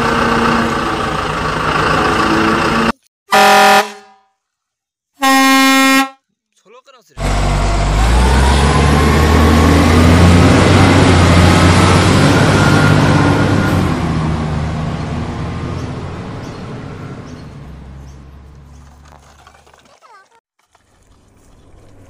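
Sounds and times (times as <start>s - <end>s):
large truck engine: 0.0s - 3.9s, 7.2s - 19.2s.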